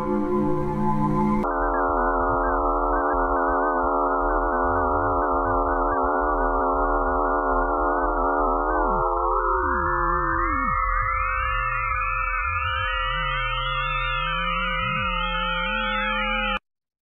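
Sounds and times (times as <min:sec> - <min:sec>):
low hum: 0:00.0 - 0:01.5
eerie electronic drone: 0:00.0 - 0:16.6.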